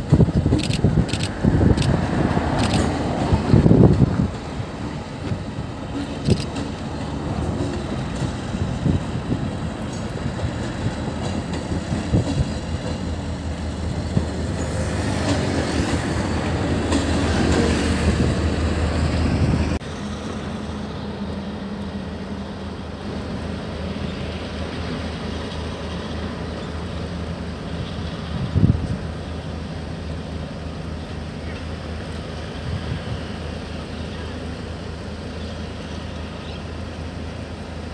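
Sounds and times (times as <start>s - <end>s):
train wheels clattering: 0.0s - 18.6s
train rumbling past: 0.0s - 37.9s.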